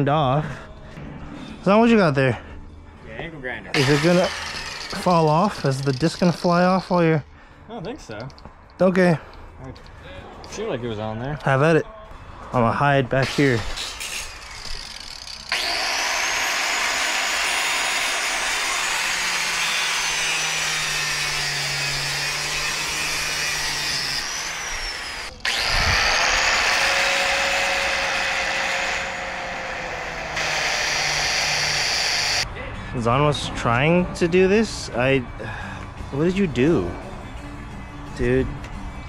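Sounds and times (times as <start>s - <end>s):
angle grinder cutting chain: 3.7s - 7.1s, 13.2s - 32.4s.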